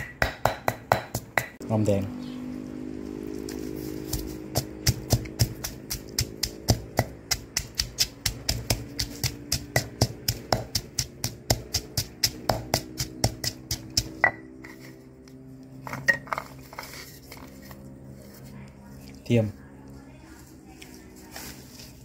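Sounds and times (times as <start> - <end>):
pestle pounding in stone mortar: 0.0 - 1.6, 4.0 - 14.7.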